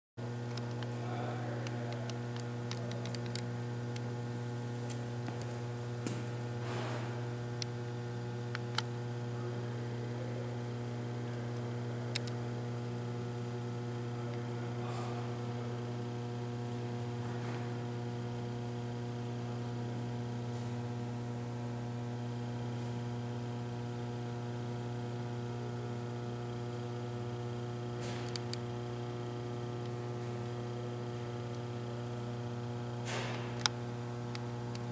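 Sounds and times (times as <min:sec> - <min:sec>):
electrical hum: 0:00.2 - 0:34.9.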